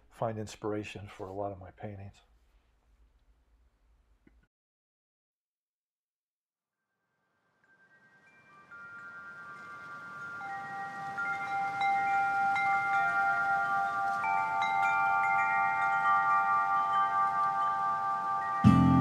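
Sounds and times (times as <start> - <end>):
ringing chime tones: 7.4 - 19.0.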